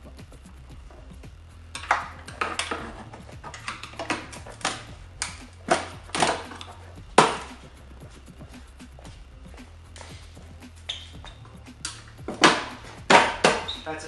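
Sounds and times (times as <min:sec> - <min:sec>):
knocks on plastic tail section: 0:12.3 - 0:13.7.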